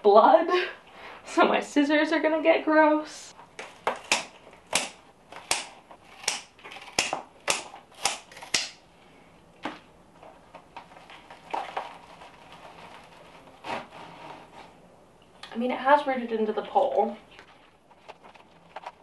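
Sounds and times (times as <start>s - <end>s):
scissors snipping stems: 3.6s - 8.8s
plant leaves rustling: 10.8s - 14.8s.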